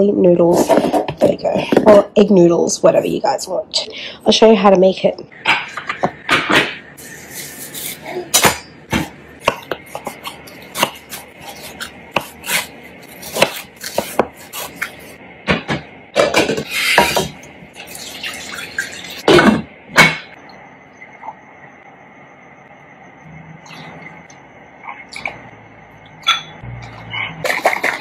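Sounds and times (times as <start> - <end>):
liquid pouring into pot: 17.8 - 19.2
bowls and pot clinking: 26.1 - 28.0.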